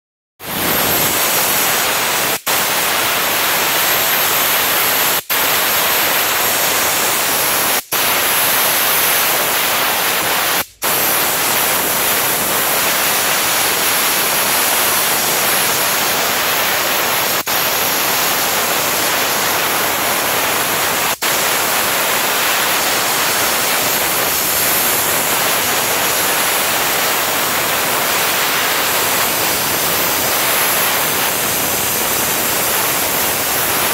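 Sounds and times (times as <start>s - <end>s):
steam jet hissing: 0.4s - 33.9s.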